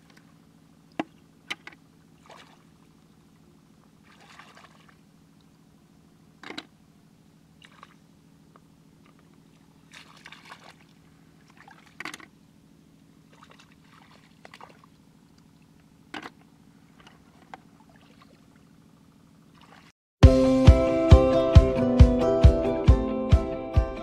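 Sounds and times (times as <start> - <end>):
splashes and squelches in mud: 1.0 - 2.9, 4.0 - 5.1, 7.6 - 8.0, 9.0 - 12.3, 13.2 - 18.8, 19.5 - 19.9.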